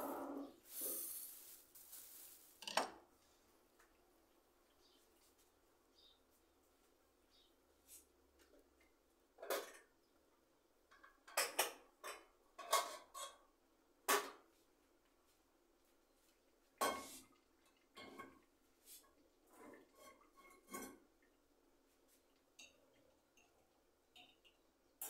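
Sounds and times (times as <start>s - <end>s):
dishes and utensils clattering: 9.4s - 10.0s, 10.9s - 13.5s, 16.8s - 18.5s, 19.5s - 21.2s, 22.6s - 24.6s.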